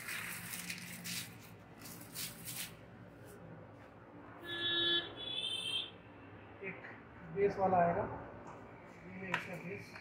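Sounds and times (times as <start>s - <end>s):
plastic packaging crinkling: 0.0s - 2.8s.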